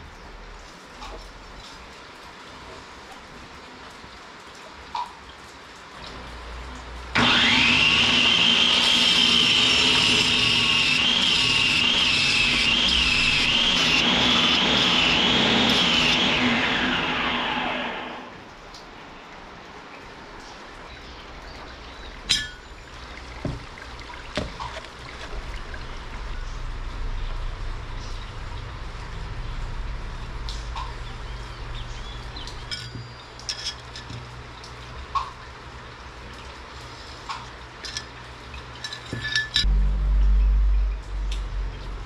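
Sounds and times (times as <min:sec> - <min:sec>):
steady low hum: 0:21.3 - 0:42.0
steel pieces clinking on workbench: 0:32.7 - 0:34.2, 0:38.8 - 0:39.7.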